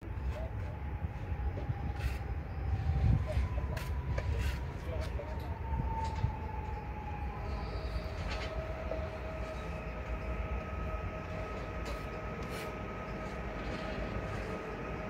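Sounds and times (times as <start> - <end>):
traction drive whine: 0.0 - 15.0
electric train rumble: 5.4 - 15.0.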